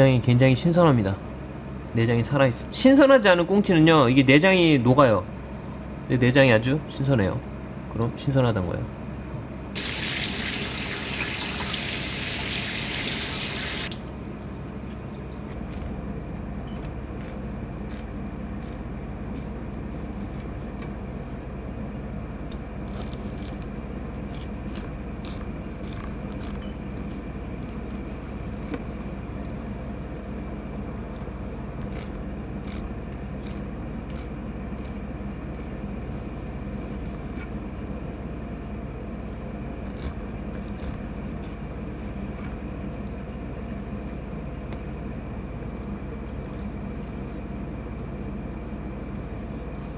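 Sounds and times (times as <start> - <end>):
low background hum: 0.0 - 49.9
knife clicking and scraping on board: 31.9 - 35.7.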